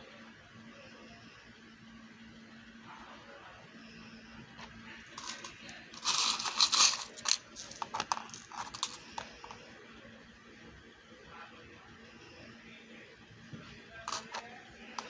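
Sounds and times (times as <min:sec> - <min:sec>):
metal charms clinking: 0:05.2 - 0:09.2.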